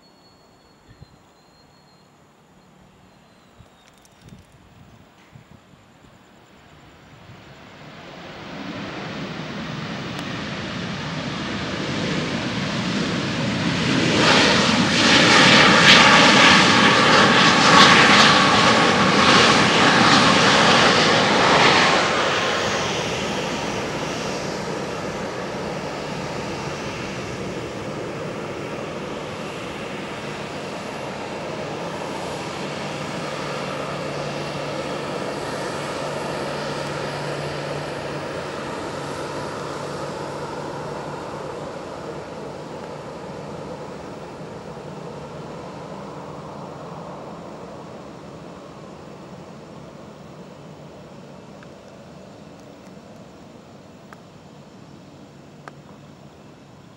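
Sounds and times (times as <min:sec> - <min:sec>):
jet engines whine and rush: 0:00.0 - 0:56.9.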